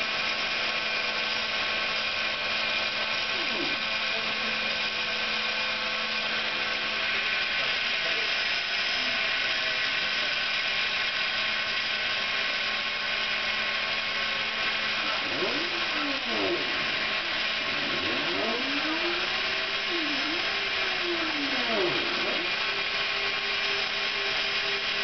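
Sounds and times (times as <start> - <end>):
router spindle whine: 0.0 - 25.0
bit cutting fibreboard: 3.2 - 4.1, 15.0 - 23.3.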